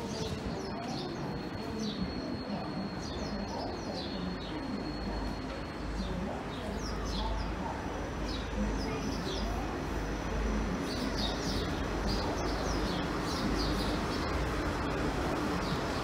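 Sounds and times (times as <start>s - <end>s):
low rumble of trains: 0.0s - 16.0s
small birds chirping: 10.7s - 14.7s.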